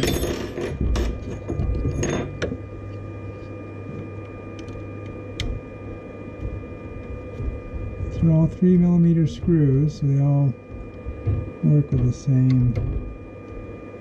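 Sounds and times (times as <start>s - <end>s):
steady hum with faint whine: 0.0s - 14.0s.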